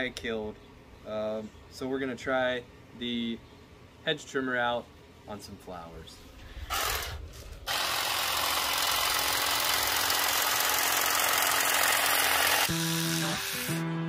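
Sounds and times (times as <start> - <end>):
hedge trimmer cutting stems: 6.7 - 13.8
music: 12.7 - 14.0.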